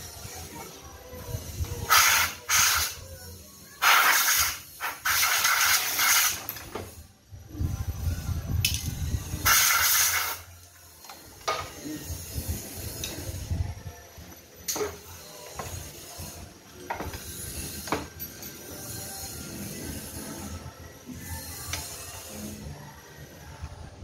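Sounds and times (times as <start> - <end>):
compressed air blasts hissing: 1.4 - 3.0, 3.8 - 6.5, 9.1 - 10.6.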